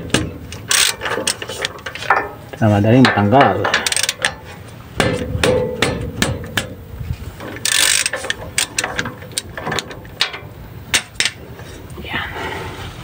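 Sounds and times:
socket ratchet clicking: 7.6s - 9.9s.

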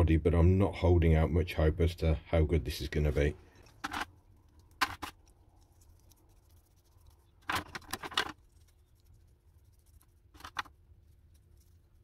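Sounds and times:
paintbrush scratching on metal: 5.6s - 12.0s.

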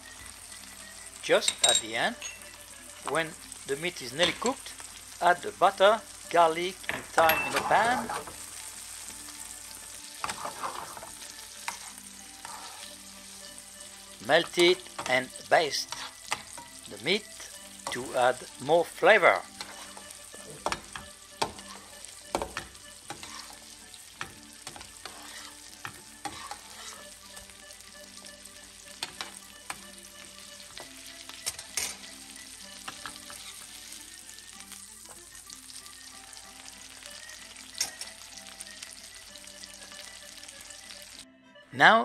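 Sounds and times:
steak sizzling in a frying pan: 0.0s - 41.2s
metal spoon scraping a pan: 7.2s - 8.4s, 10.1s - 15.2s, 15.8s - 16.8s, 19.4s - 27.5s, 29.0s - 29.8s, 30.7s - 32.2s, 32.8s - 33.8s.

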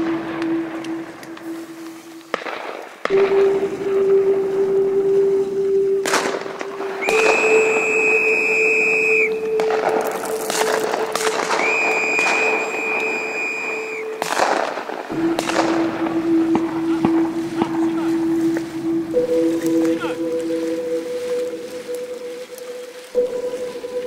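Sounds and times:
steady low drone: 0.0s - 24.0s
shotgun shots echoing: 2.3s - 3.6s, 6.0s - 7.5s, 9.6s - 12.8s, 14.2s - 17.8s
long whistle blasts: 6.8s - 14.3s.

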